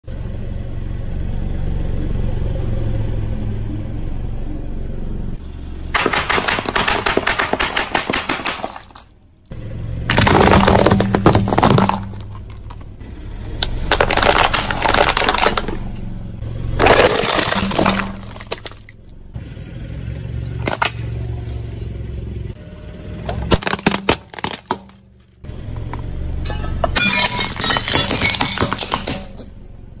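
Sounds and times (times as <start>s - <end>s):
low hum: 0.1s - 6.0s
tyre crushing brittle objects: 6.0s - 9.1s, 10.1s - 12.9s, 13.6s - 16.0s, 16.8s - 18.9s, 23.3s - 25.1s.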